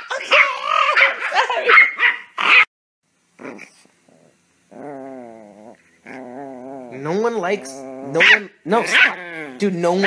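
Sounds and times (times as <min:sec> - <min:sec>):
small dog barking and yapping: 0:00.2 - 0:02.7, 0:08.1 - 0:09.2
dog whining: 0:03.4 - 0:10.0.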